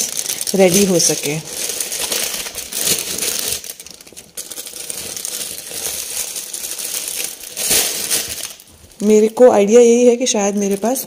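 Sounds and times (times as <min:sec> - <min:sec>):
plastic bags crinkling: 0:00.0 - 0:11.0.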